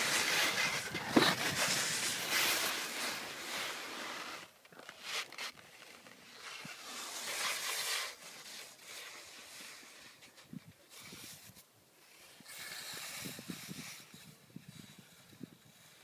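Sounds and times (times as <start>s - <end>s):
skis scraping over snow: 0.0s - 16.0s
wind rushing over microphone: 12.9s - 15.8s.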